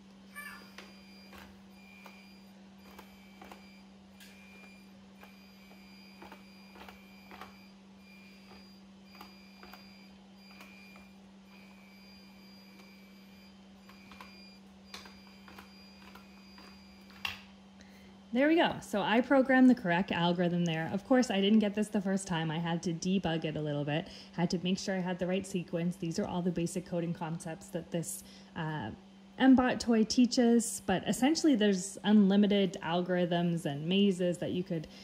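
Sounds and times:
small drive motors whining: 0.0 - 18.2
steady low hum: 0.0 - 35.0.

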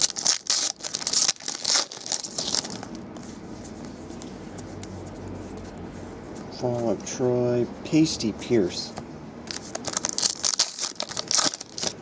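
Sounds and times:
foil wrapper tearing and crinkling: 0.0 - 2.9, 9.5 - 12.0.

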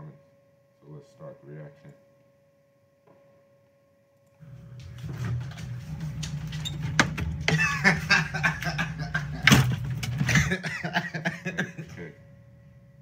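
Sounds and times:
steady low hum: 0.0 - 13.0
refrigerator door opening: 4.8 - 10.6.

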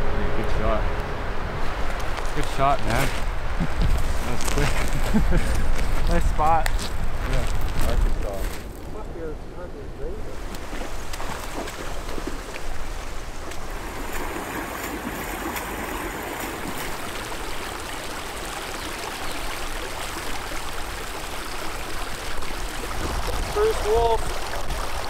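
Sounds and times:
shallow river flowing fast: 9.0 - 25.0.

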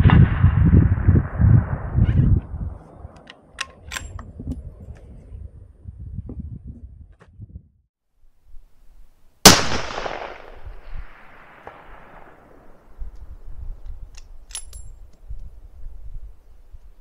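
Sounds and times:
rifle shot with echo: 9.4 - 12.7.

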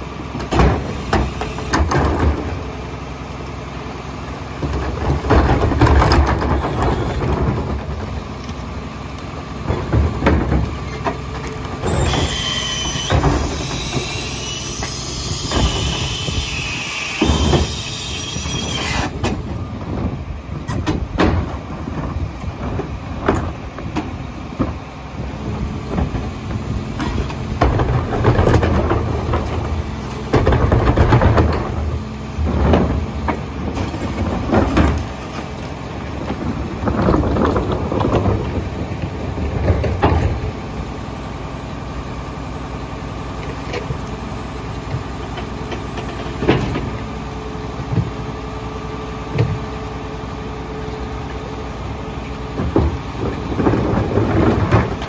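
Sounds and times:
hydraulic packer operating: 0.0 - 55.0
high metallic squeal: 11.8 - 19.2.

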